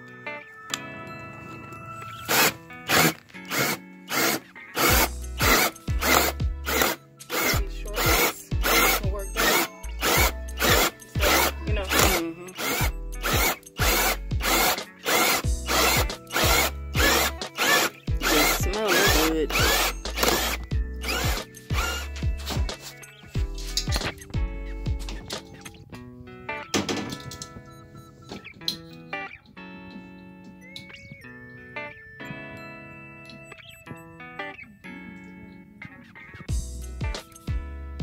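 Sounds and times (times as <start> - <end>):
music with beat and bass: 1.9 - 26.2, 36.5 - 38.0
drill hole saw cutting wood: 2.2 - 22.6.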